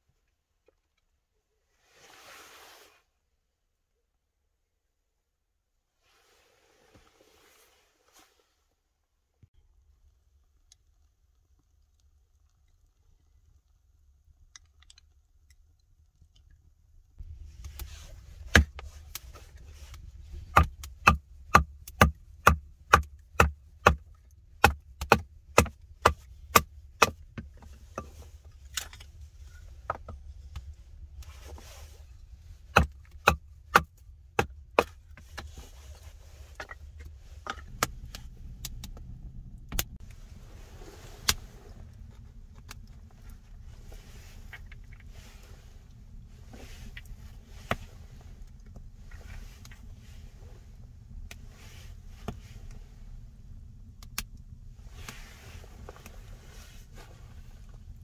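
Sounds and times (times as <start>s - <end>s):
wood being chopped: 20.5s - 24.0s, 24.6s - 27.2s, 32.7s - 34.9s.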